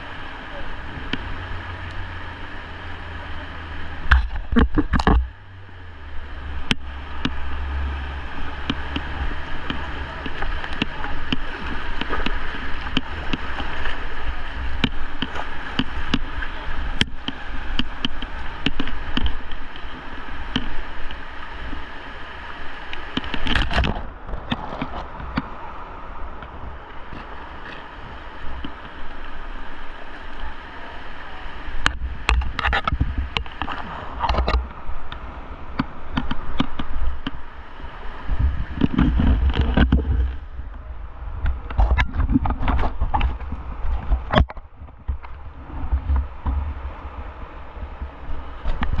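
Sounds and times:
river water rushing: 0.0s - 49.0s
water splashing against boat: 0.0s - 49.0s.

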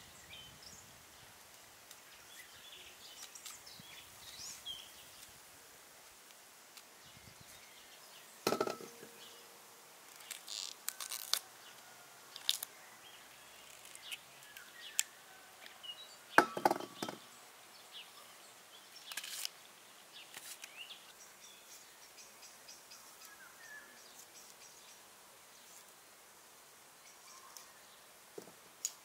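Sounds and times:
food knocking and crackling: 8.4s - 9.2s, 16.4s - 17.2s
faint bird chirps: 27.0s - 28.1s.

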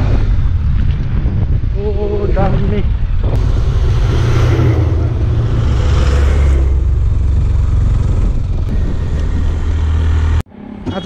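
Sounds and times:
wind and road noise: 0.0s - 11.0s
vehicle engine drone: 3.0s - 11.0s.

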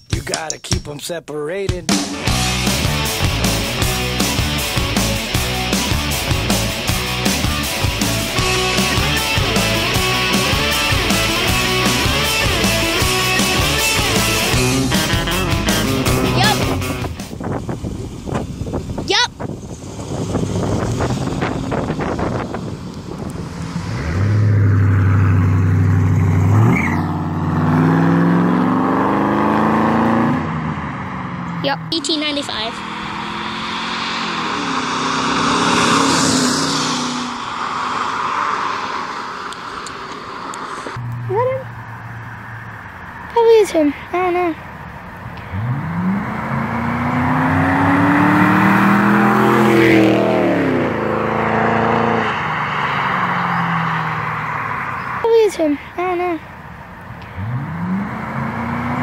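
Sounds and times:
car engine accelerating hard: 2.3s - 43.3s, 44.2s - 55.3s, 56.0s - 59.0s.

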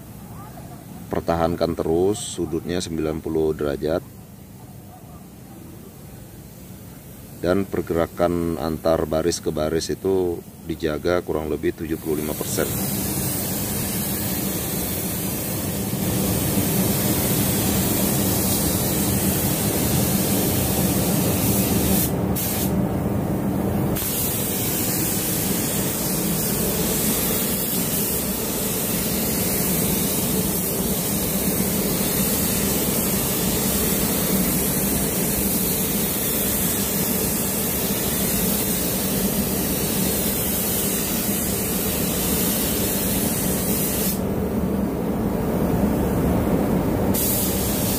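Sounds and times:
spray gun hissing: 11.5s - 22.8s, 23.8s - 44.3s, 47.0s - 47.9s.

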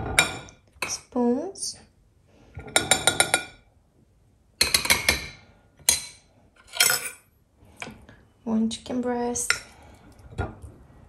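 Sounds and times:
metal spoon clinking on ceramic dishes: 4.6s - 7.2s.

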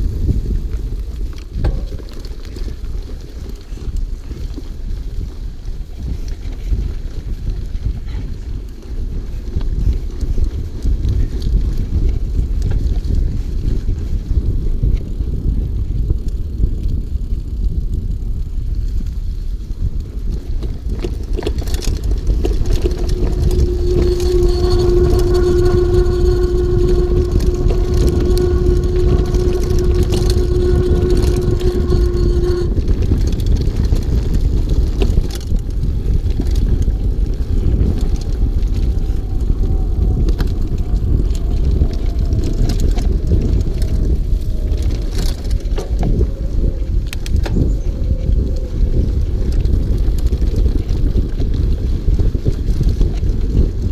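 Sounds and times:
bike tyre noise on dirt: 0.0s - 53.9s
wind rumble on microphone: 0.0s - 53.9s
steady pitched whine: 20.5s - 49.6s.

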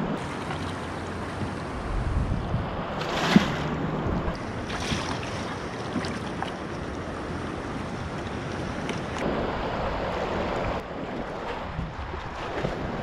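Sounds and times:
river current rushing: 0.0s - 13.0s
light water splashes: 0.2s - 1.8s, 2.9s - 9.3s, 10.0s - 13.0s
wind on microphone: 1.3s - 5.1s, 7.8s - 13.0s.

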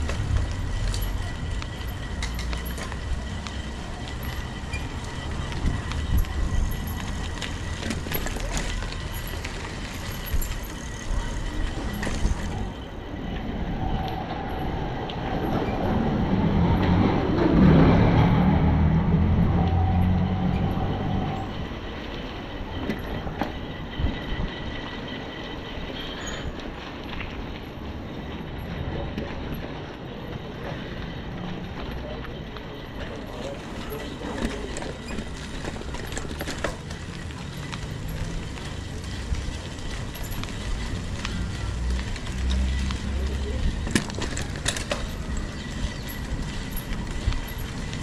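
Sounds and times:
outdoor background noise: 0.0s - 48.0s
vehicle engine passing by: 13.5s - 21.6s.

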